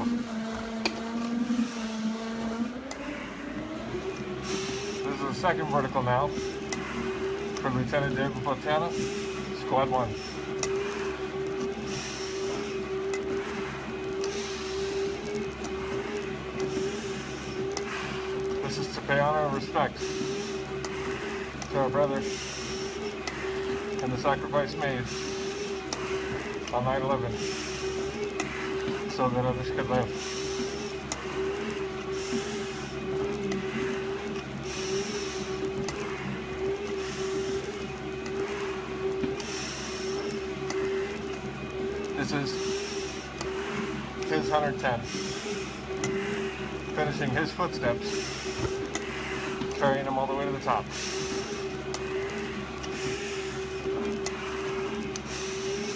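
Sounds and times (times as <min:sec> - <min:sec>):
exercise machine motor hum: 0:00.0 - 0:55.9
breathing through respirator mask: 0:08.9 - 0:09.5, 0:20.0 - 0:24.0, 0:27.3 - 0:29.2, 0:30.0 - 0:37.7, 0:38.4 - 0:41.2, 0:45.0 - 0:46.8, 0:48.0 - 0:49.7, 0:50.8 - 0:53.7, 0:54.3 - 0:55.9.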